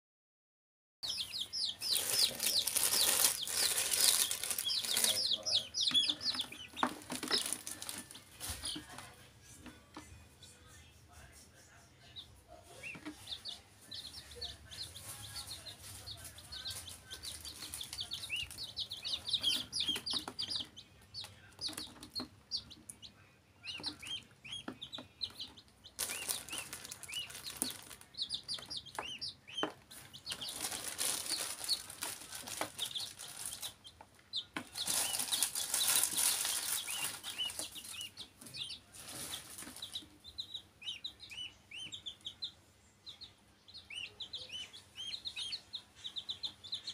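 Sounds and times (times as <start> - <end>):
chicks and duckling peeping: 1.0 - 10.1, 11.1 - 46.9
loud scratchy rustling: 1.9 - 5.2, 34.7 - 38.0.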